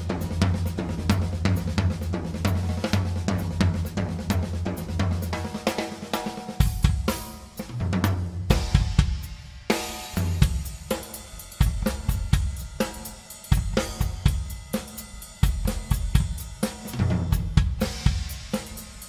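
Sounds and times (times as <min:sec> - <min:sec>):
drum kit played solo: 0:00.0 - 0:19.0
cymbals and hi-hat ringing: 0:08.6 - 0:19.0.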